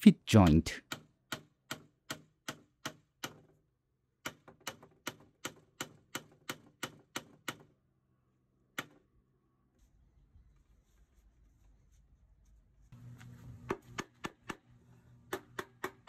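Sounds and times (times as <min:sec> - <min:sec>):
wooden mallet tapping wood pin: 0:15.3 - 0:16.0.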